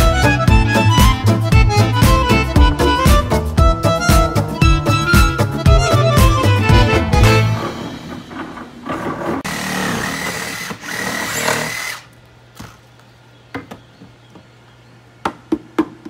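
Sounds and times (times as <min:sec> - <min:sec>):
power drill whining: 0:09.4 - 0:12.8.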